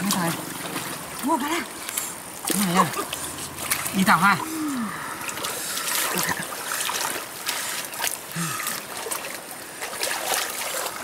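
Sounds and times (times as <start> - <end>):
hands splashing in muddy water: 5.2 - 11.0.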